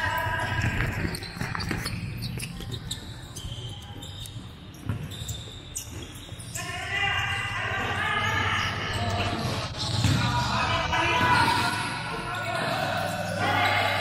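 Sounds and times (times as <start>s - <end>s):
voices calling out: 6.4s - 14.0s.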